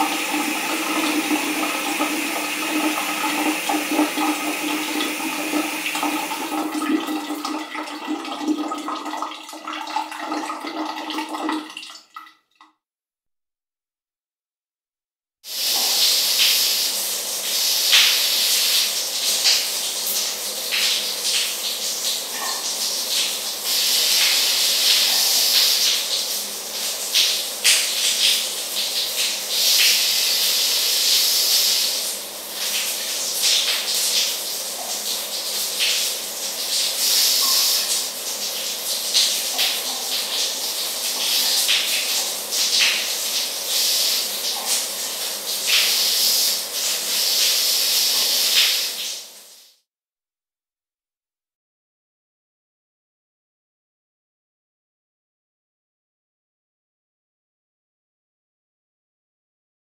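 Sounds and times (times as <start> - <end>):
shower water spray hissing: 0.0 - 6.6, 15.4 - 49.8.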